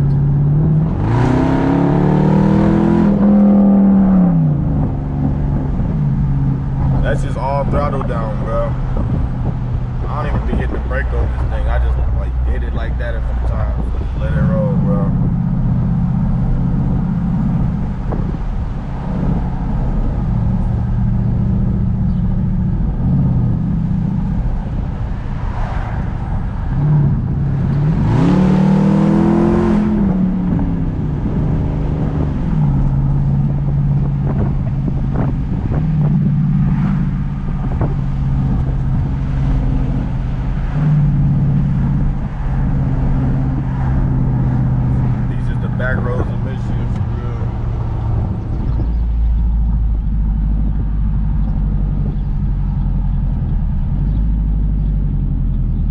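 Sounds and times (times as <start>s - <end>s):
engine revving hard: 0.0s - 4.5s, 26.8s - 30.3s
loud exhaust while driving: 0.0s - 55.9s.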